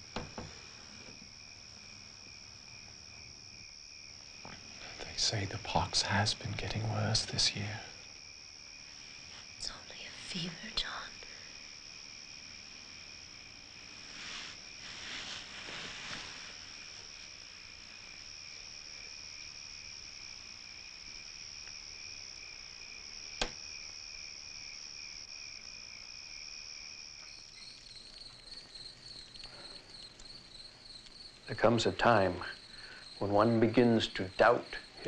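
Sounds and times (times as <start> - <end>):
crickets trilling: 0.0 - 35.0
pulsing insect chirp: 0.0 - 35.0.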